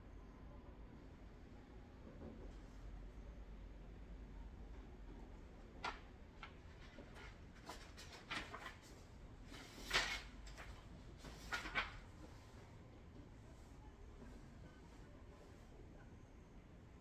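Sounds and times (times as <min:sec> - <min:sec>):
faint low hum: 0:00.0 - 0:17.0
rustling and scraping handling: 0:05.8 - 0:12.7.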